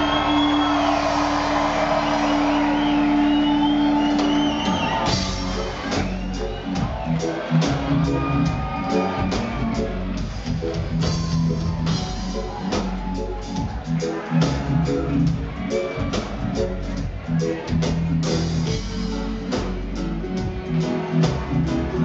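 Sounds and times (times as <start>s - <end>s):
live reggae band playing: 0.0s - 22.0s.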